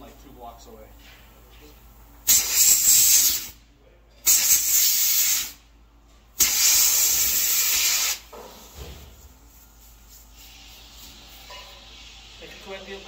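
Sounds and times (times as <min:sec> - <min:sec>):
compressed air hissing from hose: 0:02.2 - 0:03.6, 0:04.2 - 0:05.6, 0:06.4 - 0:13.0.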